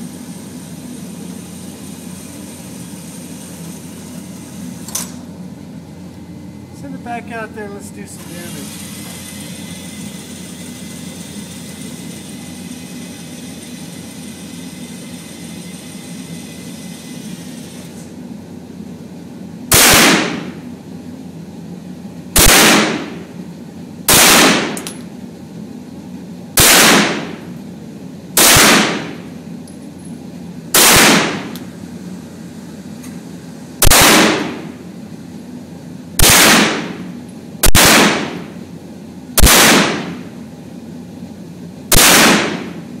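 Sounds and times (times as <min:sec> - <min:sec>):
motor whine: 0:00.0 - 0:18.6
gunshots echoing indoors: 0:19.7 - 0:20.6, 0:22.4 - 0:23.2, 0:24.1 - 0:25.0, 0:26.6 - 0:27.5, 0:28.4 - 0:29.3, 0:30.7 - 0:31.6, 0:33.8 - 0:34.7, 0:36.2 - 0:38.6, 0:39.4 - 0:40.3, 0:41.9 - 0:42.8.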